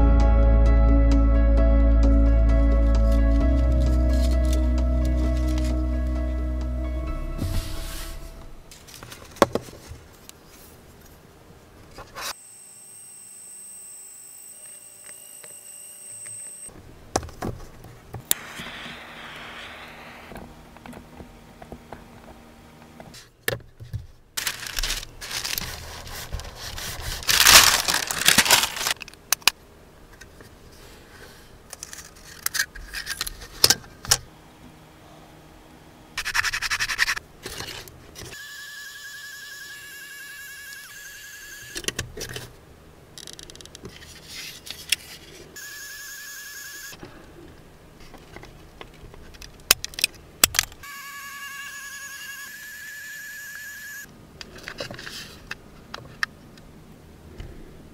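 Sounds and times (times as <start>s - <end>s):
pen extruder motor whining: 12.3s - 16.7s, 38.3s - 41.8s, 45.6s - 47.0s, 50.8s - 54.1s
plastic strips scraping on wood: 24.4s - 29.0s.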